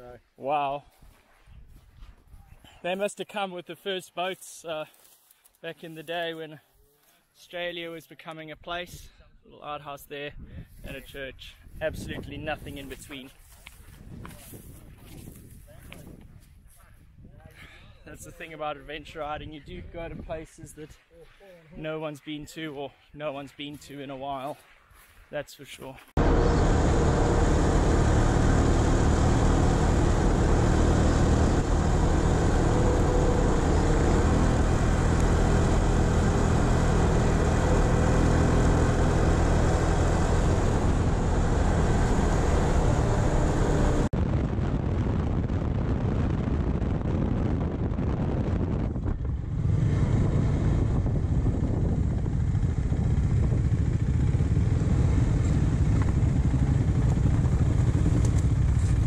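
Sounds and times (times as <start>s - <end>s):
wind noise: 10.3s - 18.4s, 19.0s - 20.7s, 39.2s - 59.0s
motorcycle engine running: 26.2s - 44.1s, 48.6s - 59.0s
tyre noise on dirt road: 26.2s - 44.6s, 48.1s - 59.0s.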